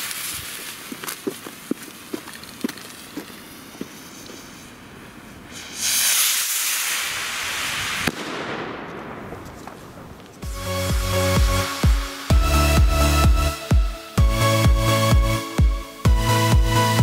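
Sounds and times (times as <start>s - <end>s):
rocket lifting off with rushing hiss: 3.4s - 10.0s
sharp crack: 5.6s - 10.5s.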